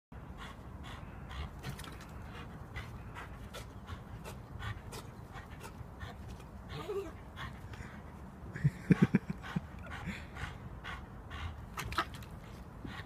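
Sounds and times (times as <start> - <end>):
dog panting hard: 0.2 - 13.0.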